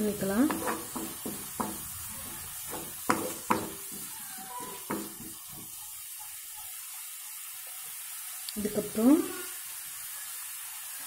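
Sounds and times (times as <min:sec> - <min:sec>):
food sizzling: 0:00.0 - 0:11.0
spatula scraping and knocking pan: 0:00.2 - 0:06.7.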